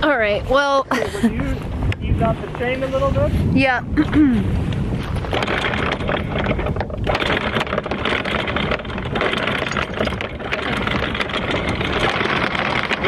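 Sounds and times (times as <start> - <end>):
windlass motor running: 0.0 - 13.0
anchor chain rattling: 4.9 - 13.0.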